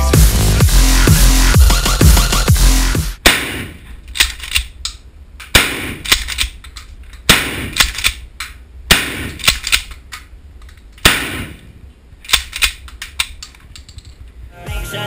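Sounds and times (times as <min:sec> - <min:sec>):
shotgun blasts: 0:03.2 - 0:03.8, 0:05.5 - 0:06.2, 0:07.3 - 0:07.9, 0:08.9 - 0:09.6, 0:11.0 - 0:11.7
sharp cracks: 0:03.2 - 0:14.2.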